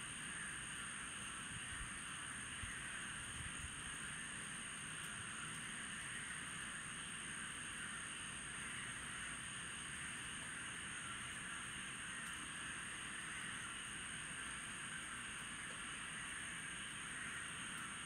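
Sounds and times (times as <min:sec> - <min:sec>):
night animals chorus: 0:04.0 - 0:18.0.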